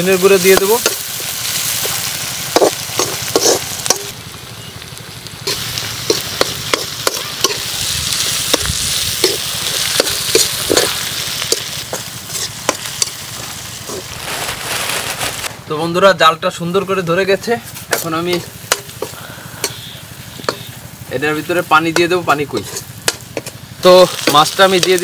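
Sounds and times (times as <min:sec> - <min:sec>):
vegetables sizzling in hot oil: 0:00.0 - 0:15.5, 0:17.2 - 0:25.0
metal spatula scraping a pan: 0:02.6 - 0:04.1, 0:22.6 - 0:23.5.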